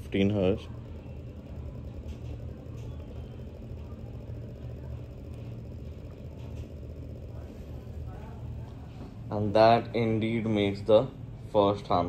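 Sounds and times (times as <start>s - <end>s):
vibrating string low hum: 0.0s - 10.3s.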